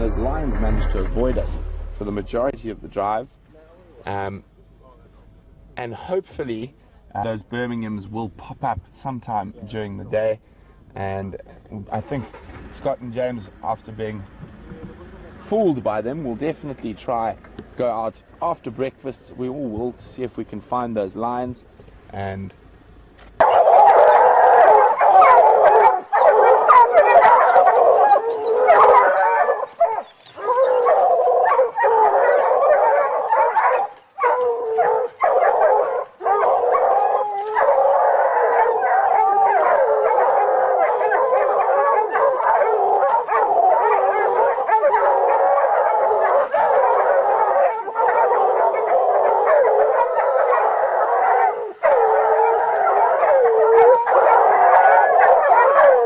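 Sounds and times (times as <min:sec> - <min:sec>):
dogs howling and yelping: 0:23.4 - 0:56.0.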